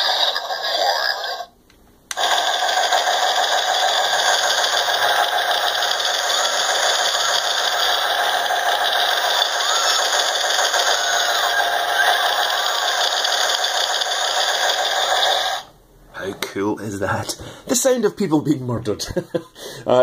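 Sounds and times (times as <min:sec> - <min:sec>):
machine-gun fire: 0:02.2 - 0:15.7.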